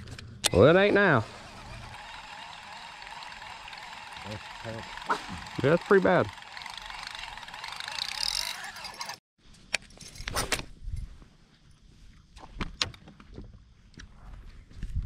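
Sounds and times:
sharp clicks of fishing gear: 0:01.8 - 0:10.7
fishing line hissing off reel: 0:06.7 - 0:09.2.

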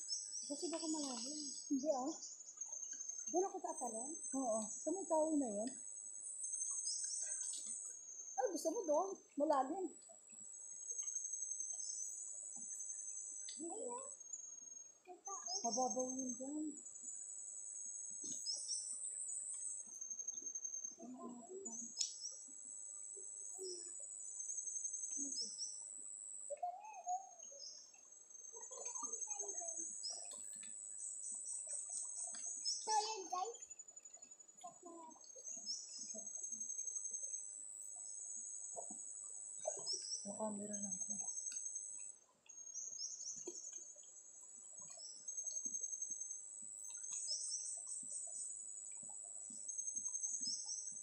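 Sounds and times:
bird chirps: 0:00.0 - 0:05.8, 0:06.4 - 0:09.8, 0:10.9 - 0:16.9, 0:18.2 - 0:22.6, 0:23.4 - 0:38.1, 0:39.6 - 0:51.0
high-pitched insect buzzing: 0:10.4 - 0:51.0.

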